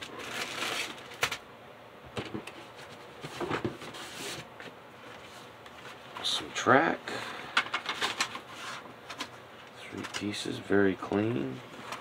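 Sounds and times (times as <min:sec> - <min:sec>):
plastic bags rustling: 0:00.0 - 0:01.4.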